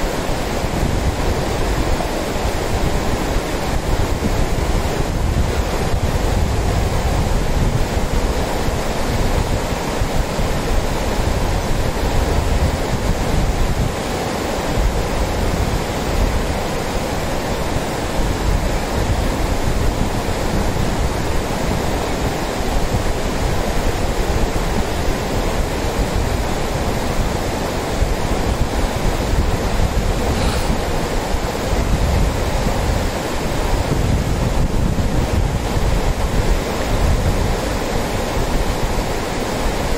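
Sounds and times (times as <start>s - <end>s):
river rushing over rocks: 0.0s - 39.9s
wind buffeting microphone: 0.0s - 39.9s.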